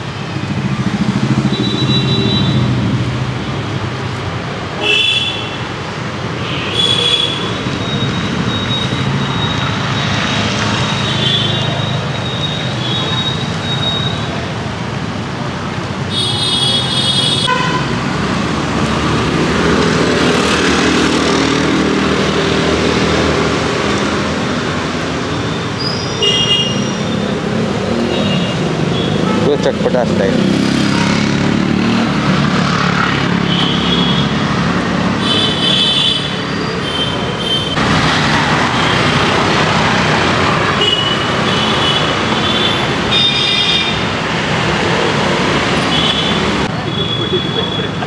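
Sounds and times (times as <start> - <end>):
road traffic: 0.0 - 48.0
vehicle horns honking: 4.8 - 5.6, 6.5 - 7.6, 16.1 - 18.0, 25.8 - 27.3, 28.1 - 30.0, 40.6 - 44.0.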